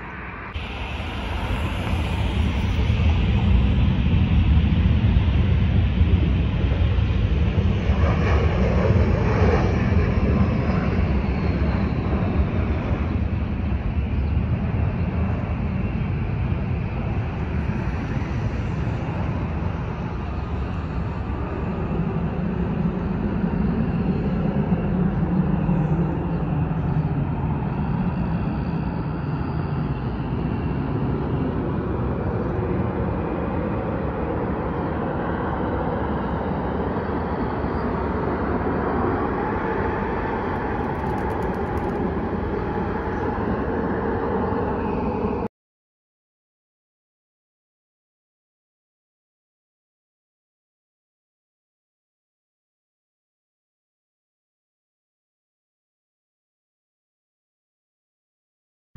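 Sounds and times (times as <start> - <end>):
jet engine rumble: 0.0 - 45.5.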